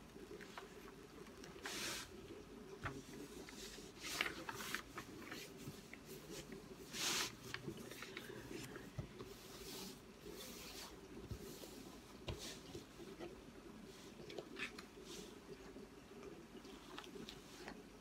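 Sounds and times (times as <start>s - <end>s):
hands swishing over plastic film: 2.9s - 13.0s.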